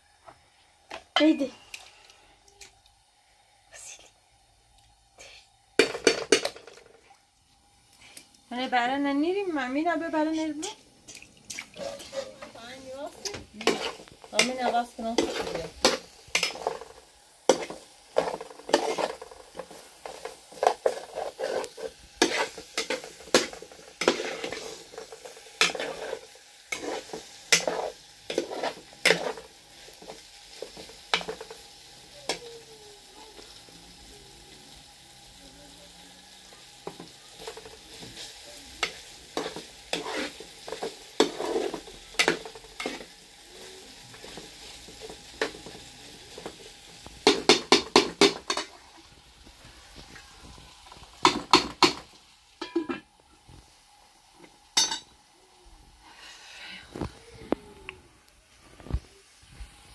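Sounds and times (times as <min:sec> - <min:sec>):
food sizzling in a pan: 0:00.0 - 0:59.9
utensil scraping and clinking pan: 0:11.8 - 0:12.6, 0:13.6 - 0:29.5, 0:38.8 - 0:43.1, 0:52.6 - 0:53.1, 0:54.8 - 0:55.1.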